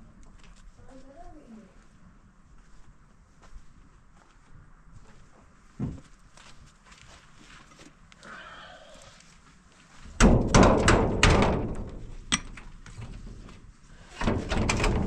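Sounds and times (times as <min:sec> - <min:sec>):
loud heavy knocks and thuds: 0:10.2 - 0:12.2, 0:14.2 - 0:15.0.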